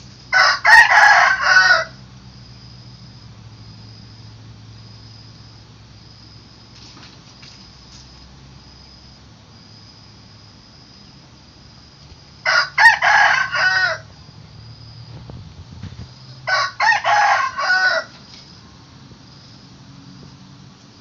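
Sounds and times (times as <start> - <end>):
rooster crowing: 0.3 - 2.1, 12.4 - 14.2, 16.2 - 18.3.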